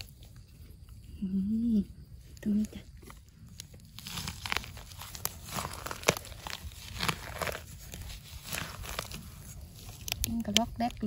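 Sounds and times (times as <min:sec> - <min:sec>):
dry leaves rustling: 0:00.0 - 0:01.0, 0:02.2 - 0:11.0.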